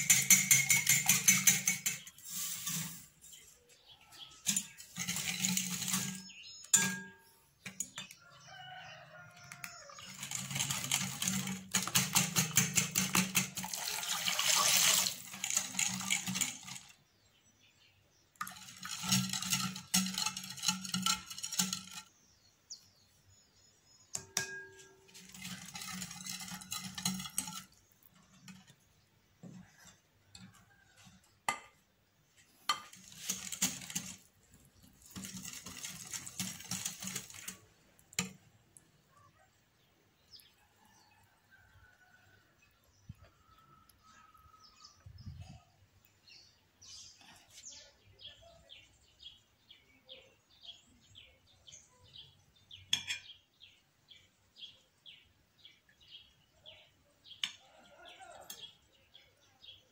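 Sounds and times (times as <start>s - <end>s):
whisk clattering in glass bowl: 0.0s - 2.2s, 4.4s - 8.1s, 10.0s - 16.9s, 18.4s - 22.1s, 24.2s - 28.7s, 32.7s - 34.3s, 34.9s - 37.6s.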